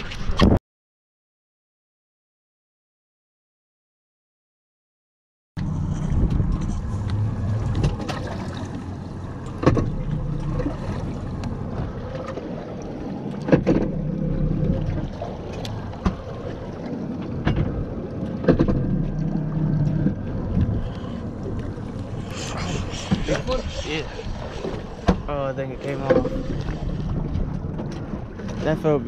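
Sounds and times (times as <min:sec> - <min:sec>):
wind buffeting microphone: 0:05.6 - 0:13.0, 0:13.6 - 0:29.0
low rumble: 0:05.6 - 0:29.0.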